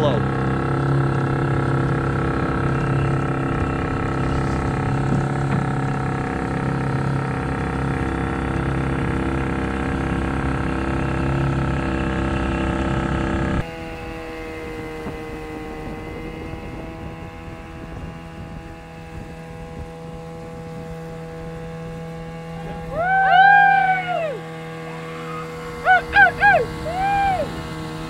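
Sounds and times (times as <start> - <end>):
outboard motor running: 0.0 - 28.0
short hoots: 22.6 - 27.5
hooting call: 22.6 - 27.7.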